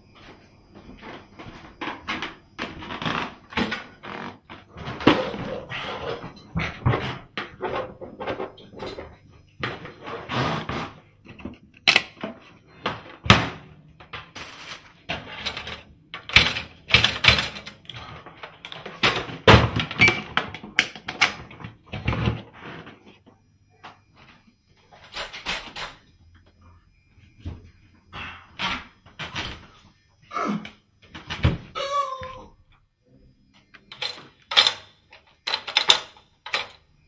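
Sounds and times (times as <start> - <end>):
irregular knocks and clatters: 0.3 - 14.4.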